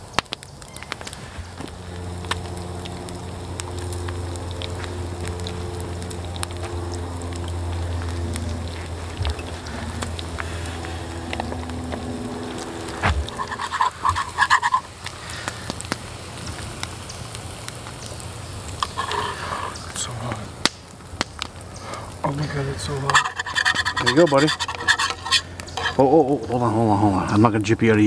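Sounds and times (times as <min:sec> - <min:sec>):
eggs sizzling in oil: 0:00.0 - 0:27.7
spatula scraping in pan: 0:12.4 - 0:15.0, 0:18.8 - 0:19.9, 0:22.5 - 0:26.2.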